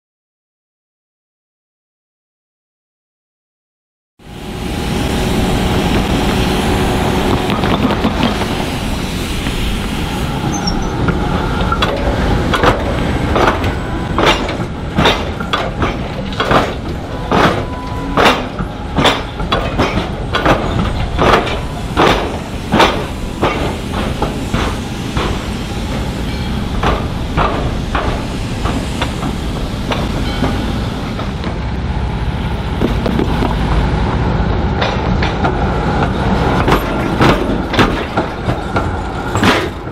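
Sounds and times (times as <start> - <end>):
tram rumble: 4.2 - 39.9
tram wheels knocking over crossing: 5.7 - 8.8, 10.6 - 31.8, 32.7 - 33.9, 34.8 - 39.9.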